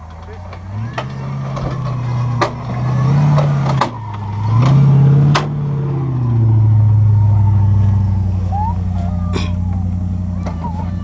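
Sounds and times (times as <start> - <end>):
engine revving: 0.0 - 11.0.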